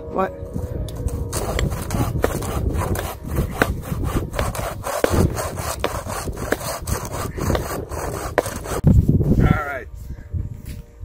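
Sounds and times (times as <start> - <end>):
hand saw cutting branch: 1.0 - 8.8.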